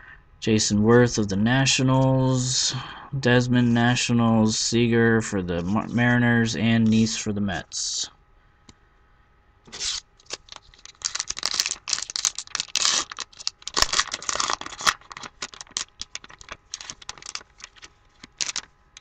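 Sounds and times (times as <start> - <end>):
wrapper tearing and crinkling: 9.7 - 19.0.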